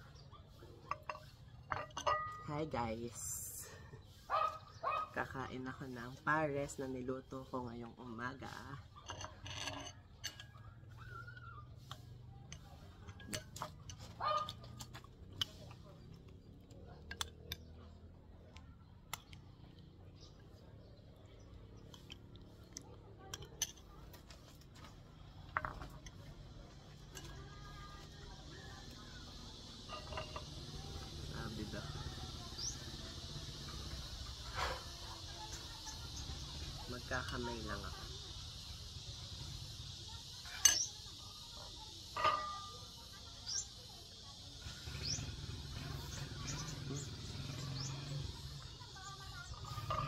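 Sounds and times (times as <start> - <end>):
tableware clicks and knocks: 0.8 - 2.6, 8.9 - 10.7, 12.5 - 15.9, 23.3 - 27.5, 29.8 - 31.0, 40.5 - 41.0, 42.1 - 42.8, 49.6 - 50.0
tableware clinking: 0.9 - 2.5, 9.0 - 10.6, 29.8 - 31.0, 40.5 - 41.0, 42.1 - 42.8
ringing clink: 0.9 - 2.6, 40.5 - 41.0, 42.2 - 42.9
insects chirring: 25.0 - 50.0
bird chirps: 43.0 - 50.0.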